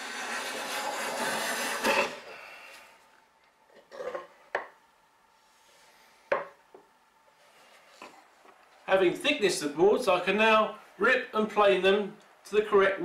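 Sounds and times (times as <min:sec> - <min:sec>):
hand plane stroke on wood: 0:00.0 - 0:02.2.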